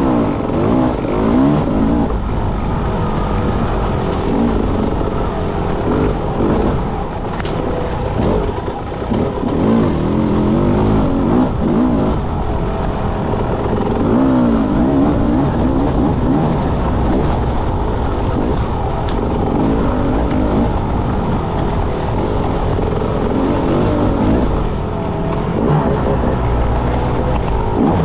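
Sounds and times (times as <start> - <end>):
motorcycle engine revving: 0.0 - 28.0.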